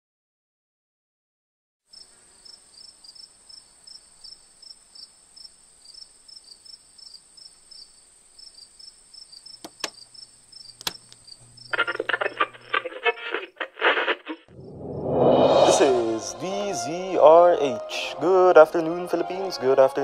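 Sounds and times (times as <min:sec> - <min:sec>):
crickets chirping: 0:01.9 - 0:12.8
boombox buttons clicking: 0:09.6 - 0:10.0, 0:10.8 - 0:11.2
low electrical hum: 0:09.6 - 0:12.9
steady high trill: 0:14.5 - 0:17.8.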